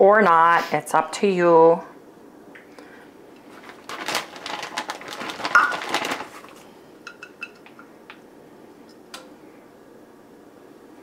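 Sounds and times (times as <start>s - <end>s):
shredded cheese rustling: 3.4s - 6.7s.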